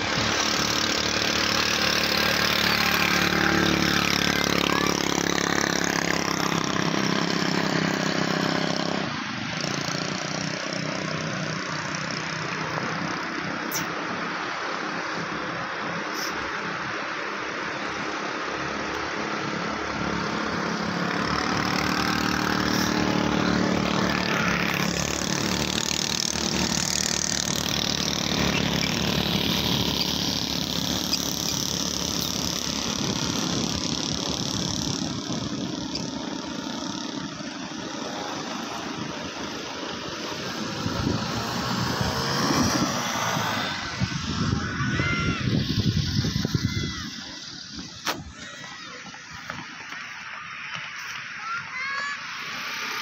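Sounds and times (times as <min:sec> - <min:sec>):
wind buffeting microphone: 0:32.0 - 0:36.7, 0:40.6 - 0:49.9.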